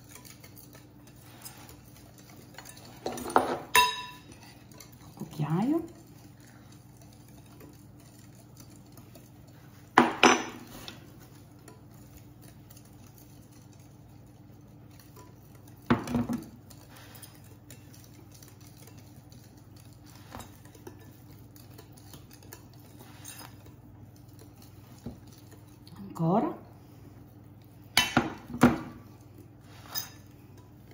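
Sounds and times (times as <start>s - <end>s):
metal spoon clinking on glass bowl: 2.6s - 4.9s.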